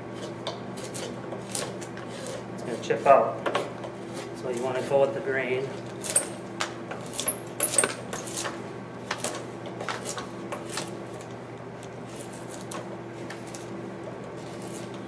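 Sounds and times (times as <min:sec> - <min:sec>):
drawknife shaving wood: 0:00.0 - 0:05.1, 0:07.0 - 0:07.3, 0:12.0 - 0:15.0.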